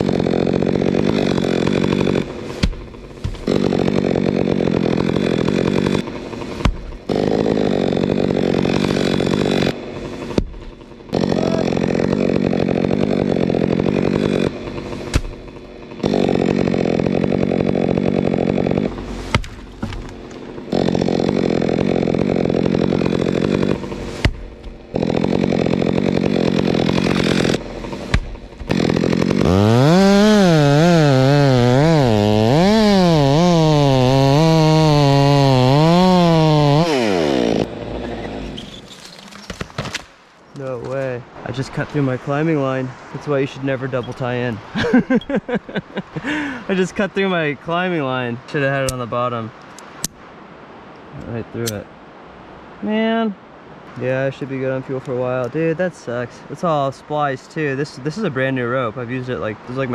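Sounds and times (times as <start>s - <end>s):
chainsaw cutting at high revs: 0.0s - 38.7s, 44.8s - 46.7s.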